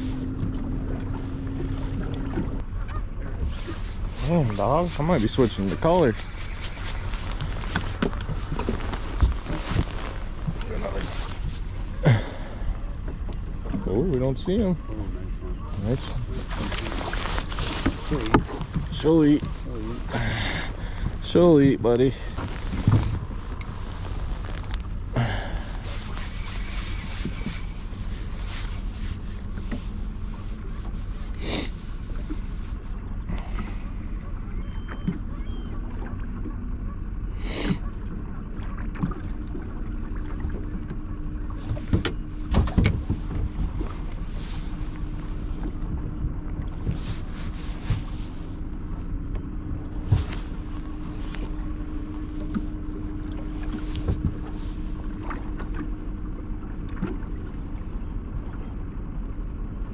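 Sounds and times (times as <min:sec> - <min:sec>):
steady low hum: 0:00.0 - 0:59.9
wind and water rumble: 0:00.0 - 0:59.9
knocks and clicks on boat: 0:12.8 - 0:15.7, 0:16.4 - 0:19.9, 0:33.1 - 0:37.1, 0:37.7 - 0:47.4, 0:48.0 - 0:57.6.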